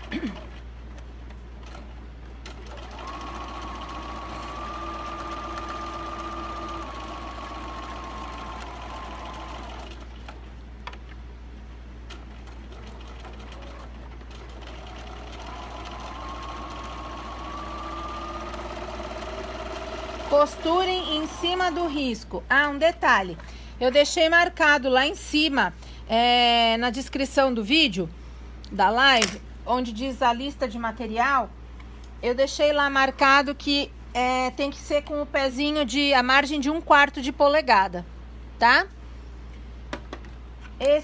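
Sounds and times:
sewing machine motor whining: 0:02.7 - 0:10.0, 0:13.0 - 0:22.1.

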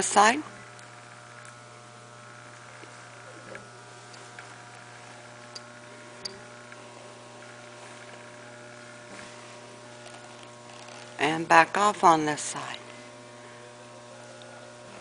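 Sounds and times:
electrical mains hum: 0:00.0 - 0:15.0
saddle tack clicks and creaks: 0:10.0 - 0:11.2.

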